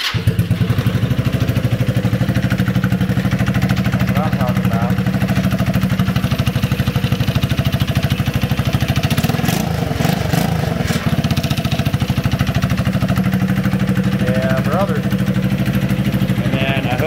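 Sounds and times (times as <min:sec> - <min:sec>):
go-kart engine idling and revving: 0:00.0 - 0:17.0.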